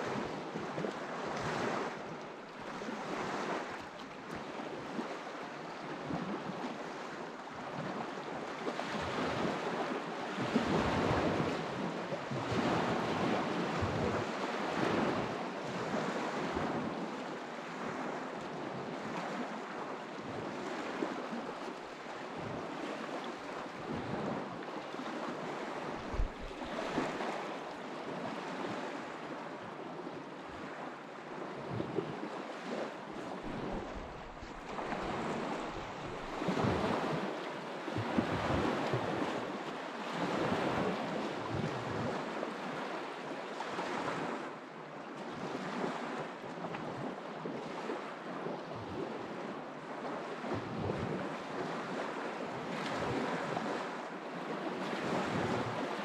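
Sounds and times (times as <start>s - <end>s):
river water rushing and splashing: 17.3s - 44.6s.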